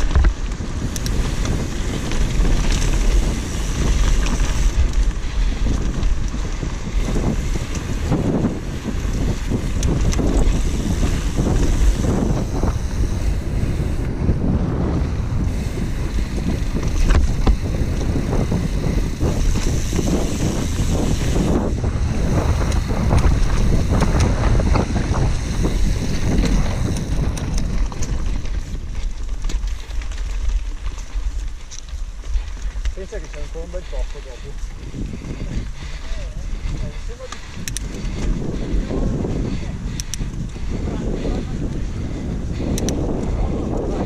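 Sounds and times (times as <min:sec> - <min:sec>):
bike knocks and rattles: 0:00.0 - 0:33.5
tyres rumbling over dirt: 0:00.0 - 0:42.6
wind rushing over microphone: 0:00.0 - 0:44.0.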